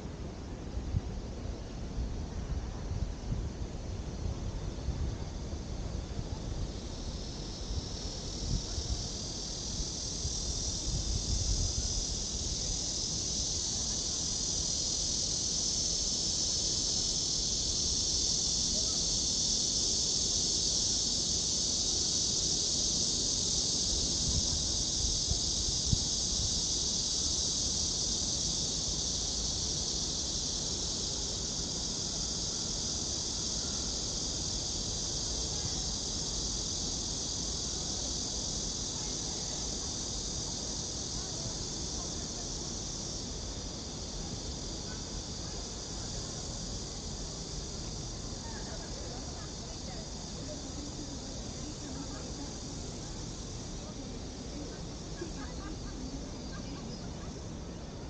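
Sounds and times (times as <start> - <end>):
wind rumble on microphone: 0.1 - 14.0, 24.2 - 26.7
insects calling: 4.0 - 58.0.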